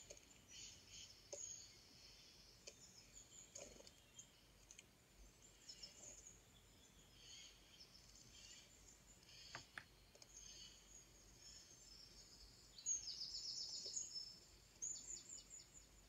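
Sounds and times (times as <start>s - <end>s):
birdsong through laptop speakers: 0.0s - 16.0s
soft clicks: 3.5s - 4.9s, 9.2s - 10.4s.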